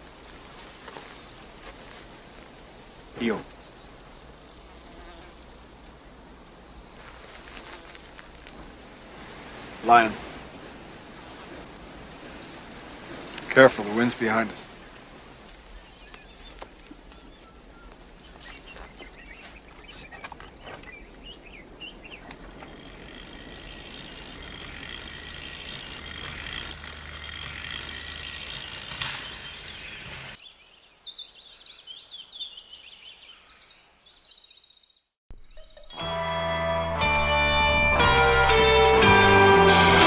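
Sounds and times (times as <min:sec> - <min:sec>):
rustles and clicks: 0:00.0 - 0:03.7, 0:07.0 - 0:21.0
steady outdoor hiss: 0:00.0 - 0:34.0
birds chirping rapidly: 0:02.7 - 0:26.5, 0:27.9 - 0:37.0.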